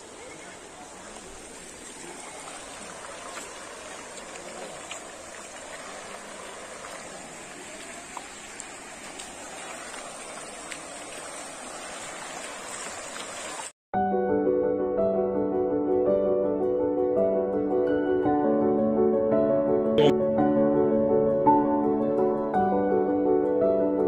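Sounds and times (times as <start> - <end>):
floodwater rushing: 0.0 - 13.7
piano music: 14.0 - 24.0.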